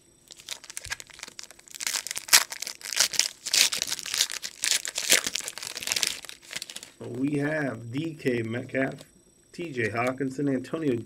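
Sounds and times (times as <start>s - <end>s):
foil wrapper crinkling: 0.3s - 7.0s.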